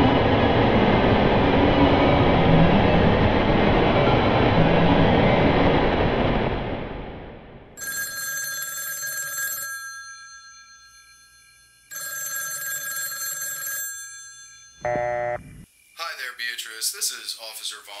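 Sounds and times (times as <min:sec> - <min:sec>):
loud rushing roar: 0:00.0 - 0:07.7
telephone bell ringing: 0:07.8 - 0:15.4.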